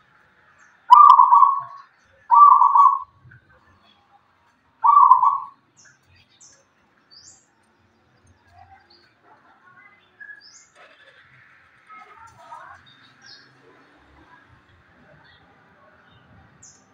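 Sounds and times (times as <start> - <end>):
faint high chirps: 0.8 - 3.1, 4.8 - 6.7
dove cooing: 0.9 - 3.1, 4.8 - 5.5.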